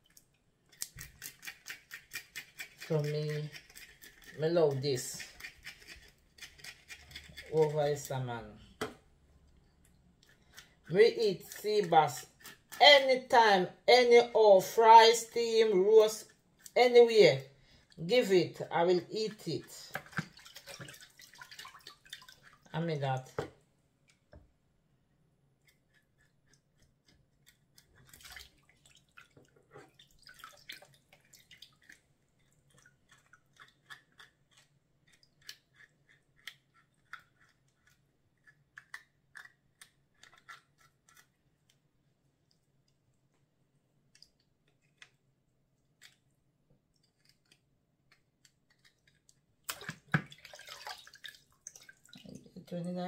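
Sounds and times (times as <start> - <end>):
knife scraping fish scales: 0.7 - 7.8, 10.2 - 13.1, 32.7 - 41.4
splash of water: 20.0 - 22.6, 49.7 - 52.3.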